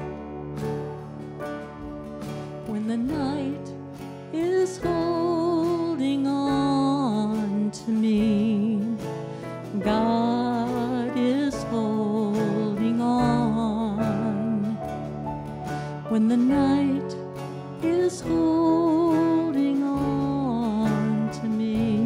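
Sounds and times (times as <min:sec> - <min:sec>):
acoustic guitar: 0:00.0 - 0:22.0
woman singing: 0:02.6 - 0:15.1, 0:15.7 - 0:22.0.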